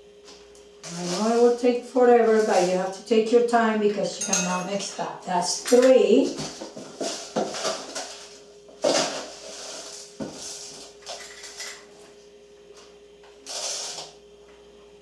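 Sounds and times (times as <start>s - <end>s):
faint steady hum: 0.0s - 15.0s
metal spoon clinking and scraping: 4.2s - 4.8s.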